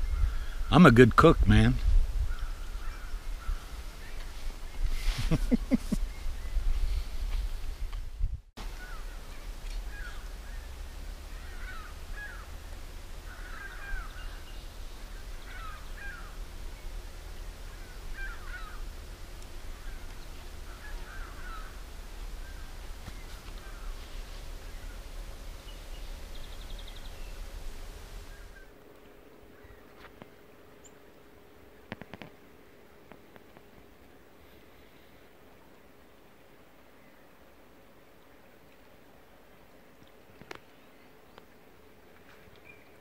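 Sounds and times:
low steady rumble: 0.0s - 39.9s
crows cawing: 8.7s - 9.2s, 9.9s - 10.3s, 11.3s - 12.6s, 13.2s - 14.4s, 15.4s - 16.4s, 17.7s - 18.9s, 20.6s - 21.9s, 23.4s - 24.0s.

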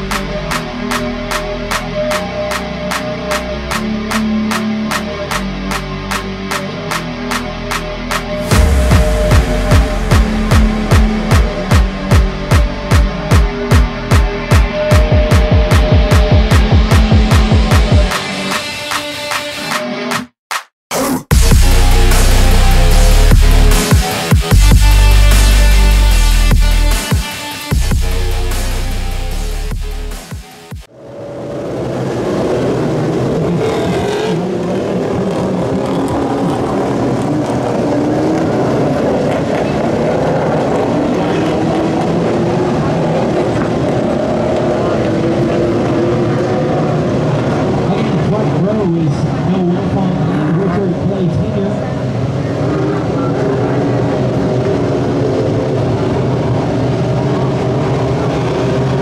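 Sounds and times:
race car engines: 30.9s - 59.0s.

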